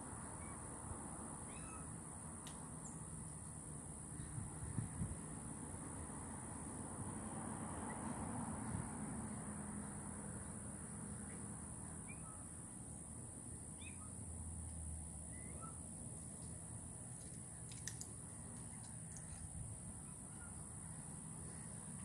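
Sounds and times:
faint short high calls: 1.5 - 2.0.

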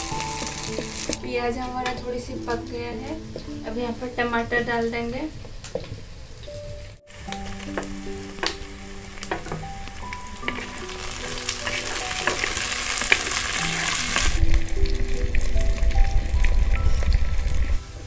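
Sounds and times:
food sizzling in hot oil: 0.0 - 18.0
wooden spatula scraping pot: 9.2 - 14.4.

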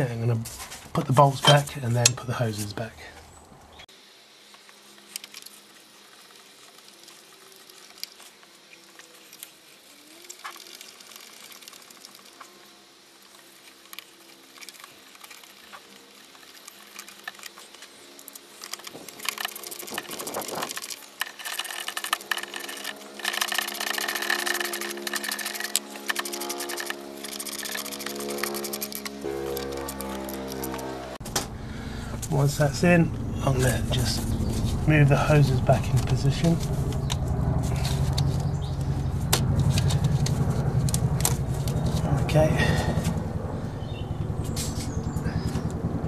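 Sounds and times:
pitched tonal hum: 17.5 - 46.0
hand ratchet clicking: 18.6 - 30.8.

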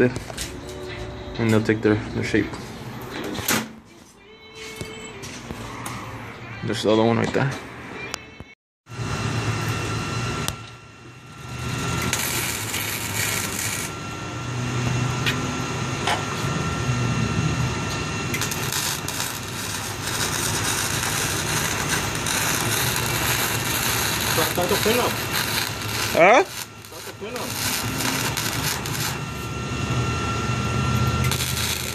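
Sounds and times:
arc welder buzzing and crackling: 8.9 - 31.9.

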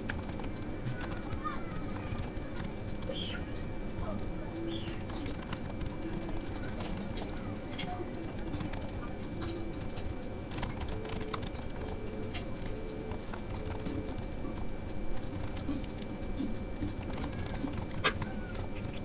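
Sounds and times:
keyboard typing: 0.0 - 19.0.

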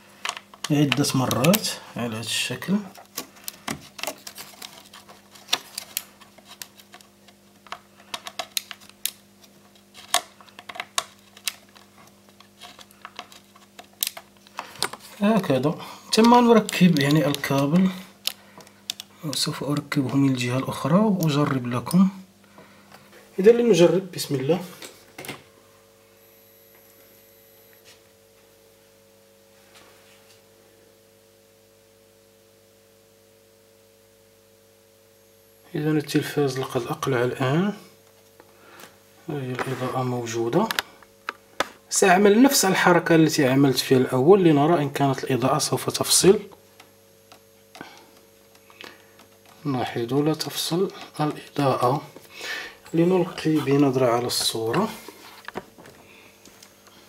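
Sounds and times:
faint electrical hum: 0.0 - 57.0
cable plug clicking and scraping: 2.9 - 9.2, 10.0 - 15.0
thin high whine: 14.4 - 57.0.

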